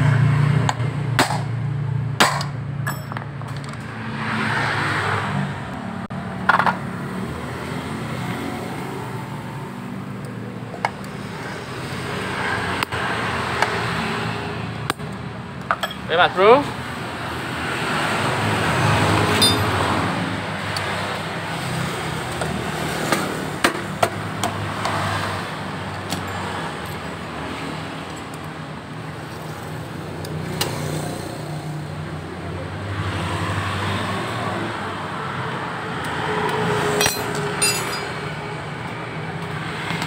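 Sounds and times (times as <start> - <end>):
street traffic hum: 0.0 - 40.0
metal clicks and knocks: 2.2 - 3.9, 6.4 - 6.8.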